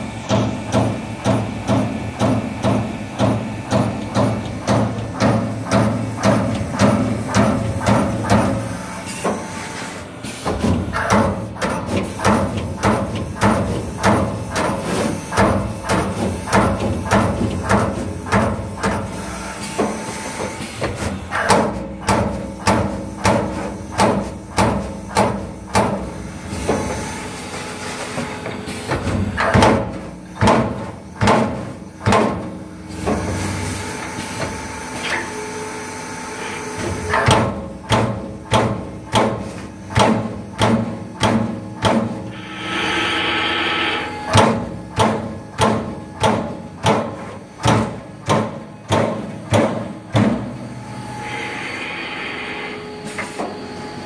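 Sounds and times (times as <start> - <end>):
machine humming: 42.2 - 45.5, 50.6 - 54.0.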